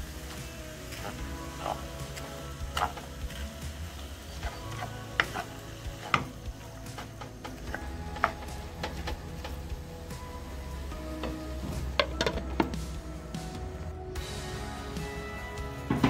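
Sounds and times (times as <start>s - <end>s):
mince frying in a pan: 0.0s - 16.0s
spatula scraping a pan: 0.1s - 12.8s.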